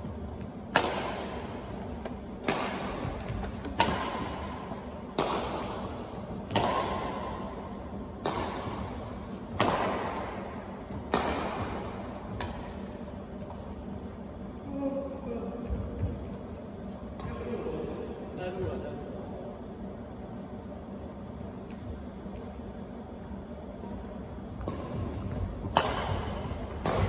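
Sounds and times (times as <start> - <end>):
rackets striking shuttlecock: 0.3 - 14.0, 17.1 - 17.6, 23.6 - 27.0.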